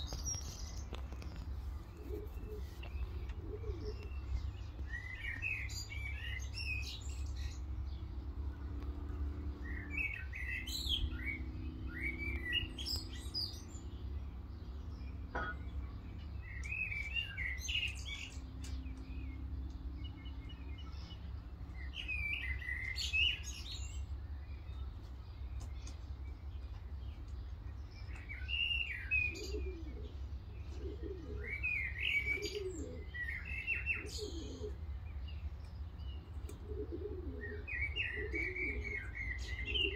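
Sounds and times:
pigeons cooing: 0.0 - 6.9, 28.0 - 35.2, 36.2 - 39.9
small songbirds chirping: 0.0 - 39.9.

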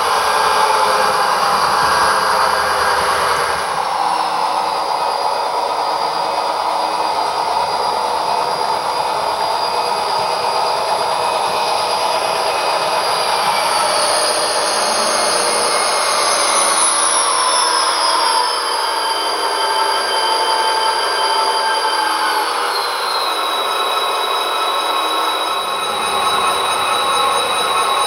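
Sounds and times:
model motor and wheel noise: 0.0 - 18.9, 24.8 - 28.0.

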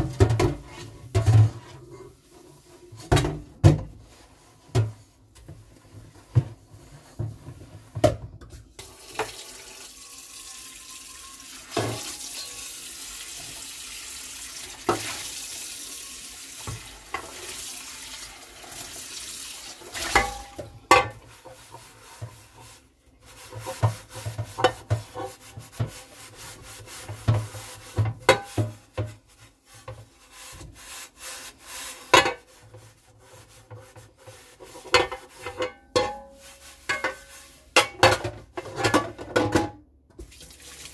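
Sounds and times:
dishes clattering: 20.0 - 21.3, 34.8 - 39.8
scrubbing a cutting board: 21.2 - 35.6, 36.2 - 37.8.

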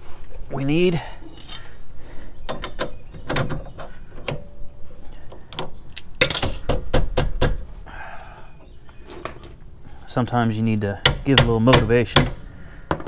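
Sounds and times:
metal tools clanking on concrete: 6.2 - 6.8, 9.0 - 9.6.

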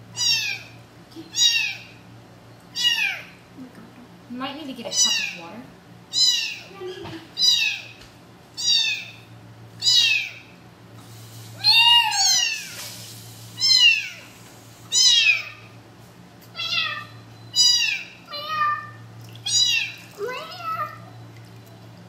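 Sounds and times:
kitten meowing: 0.2 - 1.9, 2.8 - 3.2, 6.1 - 6.7, 7.4 - 7.9, 8.6 - 9.2, 9.8 - 10.4, 11.6 - 12.8, 13.6 - 14.3, 14.9 - 15.6, 16.6 - 21.0.

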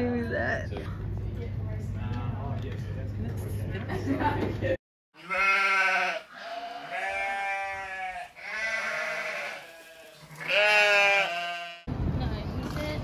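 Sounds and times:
long bleating calls: 5.2 - 11.9.

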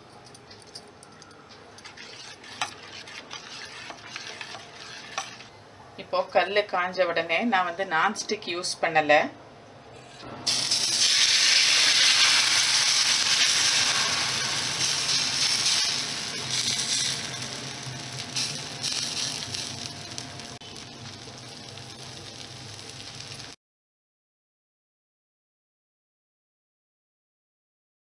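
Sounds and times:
batter sizzling on hot griddle: 1.8 - 5.5, 10.4 - 23.6.

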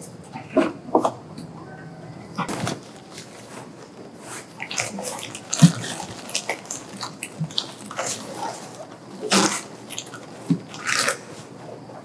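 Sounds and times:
paper wrapping rustling: 2.4 - 11.6.

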